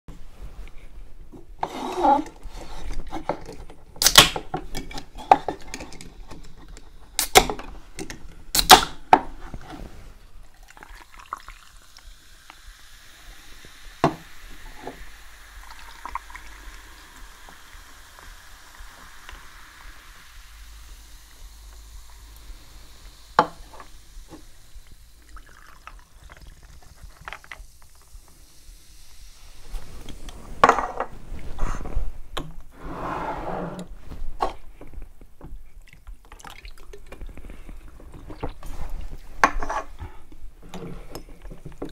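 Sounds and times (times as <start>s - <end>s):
soda cans cracking open: 3.0s - 9.2s
drinks fizzing over ice: 10.4s - 30.8s.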